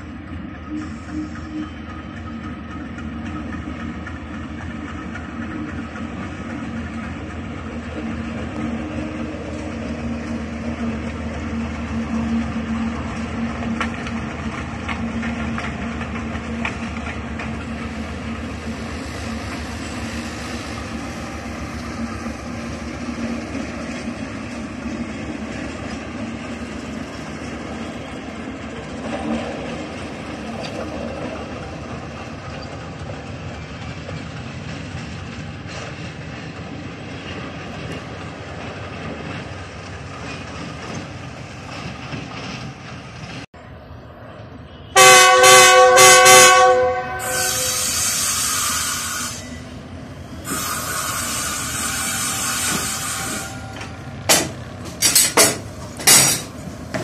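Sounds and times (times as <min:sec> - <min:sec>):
train running on track: 0:00.0 - 0:57.0
wheels clicking over rail joints: 0:01.8 - 0:18.8, 0:21.0 - 0:43.5, 0:51.6 - 0:57.0.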